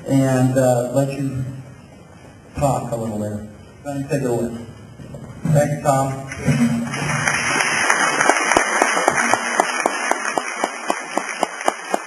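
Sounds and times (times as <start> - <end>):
audience applause: 6.4 - 12.0.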